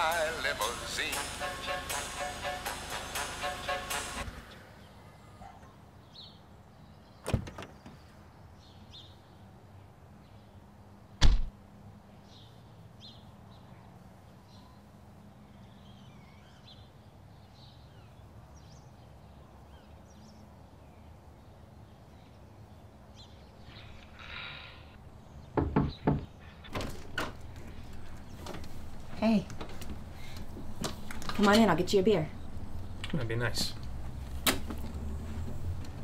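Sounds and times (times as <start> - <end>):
car door slamming shut: 11.2 - 11.5.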